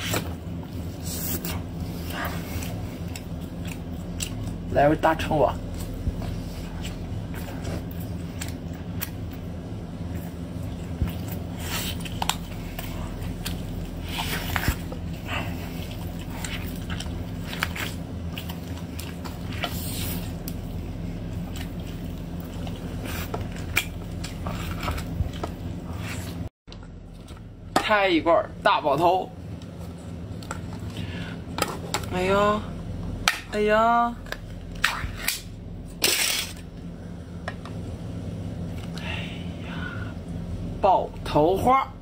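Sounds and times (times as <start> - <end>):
low steady hum: 0.0 - 42.0
person chewing wet smacking: 1.4 - 4.7, 10.1 - 19.8.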